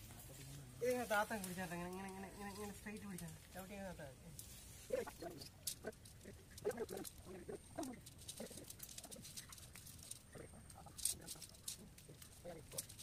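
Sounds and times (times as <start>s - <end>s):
wire mesh clinking and rattling: 5.2s - 13.0s.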